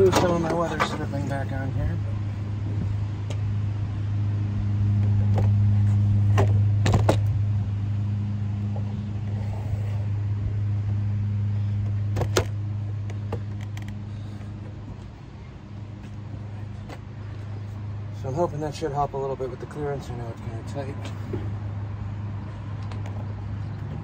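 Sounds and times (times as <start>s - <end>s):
low motor hum: 0.0s - 24.0s.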